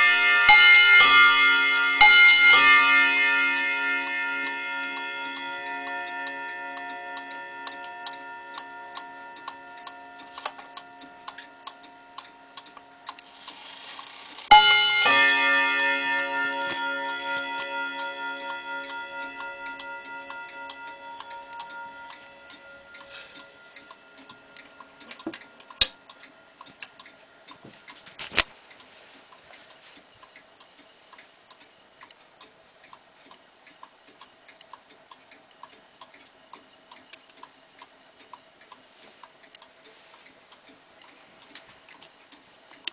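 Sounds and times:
clock chime ringing: 0.0 - 28.2
clock ticking: 0.0 - 42.9.

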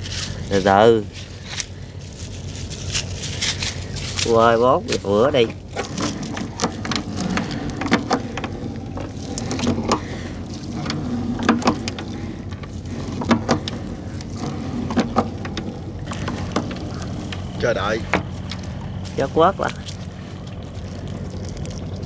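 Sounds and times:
boat engine running: 0.0 - 22.0.

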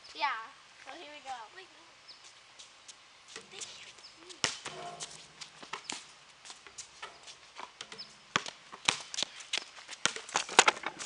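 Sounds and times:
basketballs bouncing on concrete: 3.3 - 11.0.

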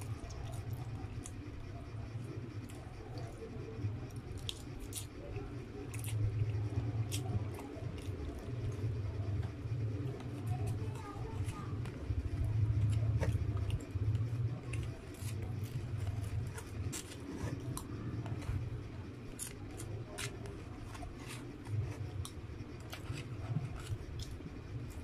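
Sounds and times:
plastic spoon scraping rice: 19.3 - 25.0.

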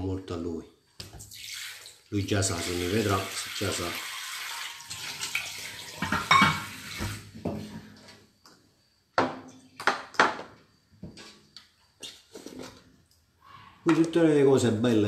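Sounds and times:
water running into metal basin: 1.3 - 7.3.

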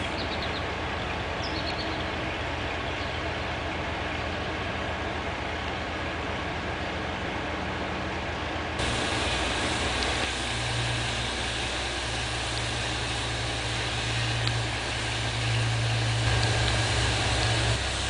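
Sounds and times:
locomotive engine idling: 0.0 - 18.0
steady hiss: 8.8 - 18.0.

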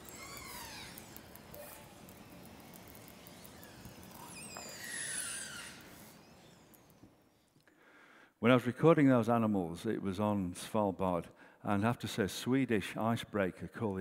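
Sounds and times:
orca echolocation clicks: 0.0 - 7.7
steady hiss: 0.0 - 8.4.

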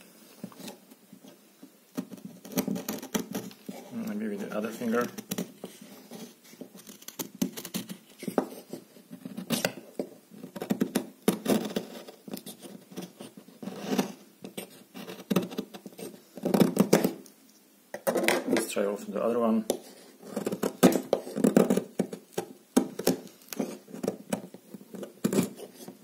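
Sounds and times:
knife shaving wooden stick: 2.0 - 9.8, 10.4 - 17.1, 19.7 - 26.0.

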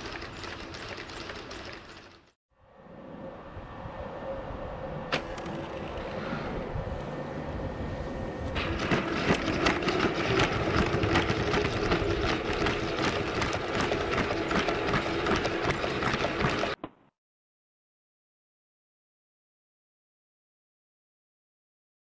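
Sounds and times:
steady motor hum: 3.8 - 16.8.

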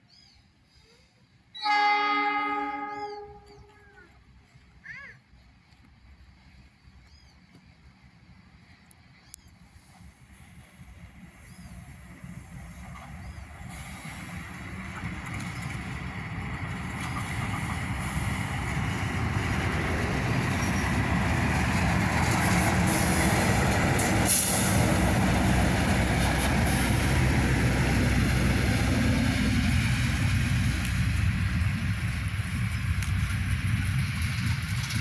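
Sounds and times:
train rumbling past: 0.6 - 35.0.

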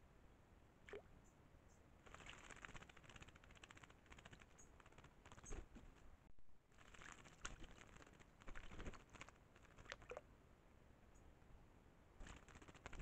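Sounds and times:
birds splashing in water: 2.0 - 5.7, 6.8 - 10.2.

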